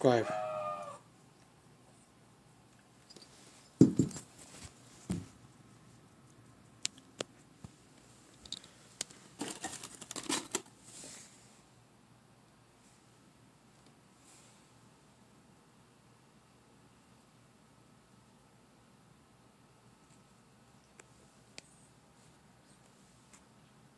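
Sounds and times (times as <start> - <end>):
metal cylinder knocking on wood: 3.8 - 4.2
cardboard box crinkling: 9.4 - 10.6.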